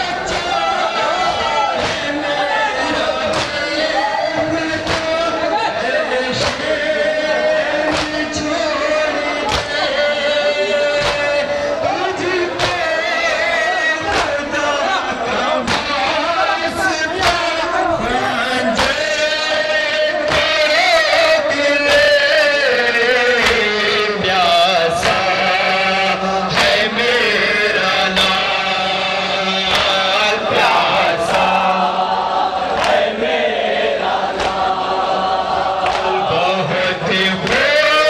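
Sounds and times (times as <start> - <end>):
men chanting in unison: 0.0 - 38.0
hands slapping chests: 1.8 - 2.2, 2.9 - 3.8, 4.8 - 5.3, 6.4 - 6.8, 7.9 - 8.4, 9.4 - 9.9, 11.0 - 11.5, 12.6 - 12.9, 14.1 - 14.5, 15.6 - 16.0, 17.1 - 17.6, 18.8 - 19.1, 20.2 - 21.2, 23.4 - 23.7, 29.6 - 30.1, 32.7 - 33.1, 34.3 - 34.8, 35.8 - 36.2.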